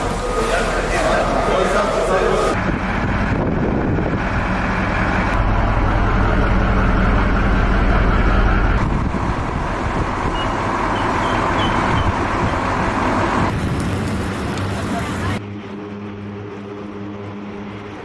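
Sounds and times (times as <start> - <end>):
truck engine drone: 0.0 - 18.0.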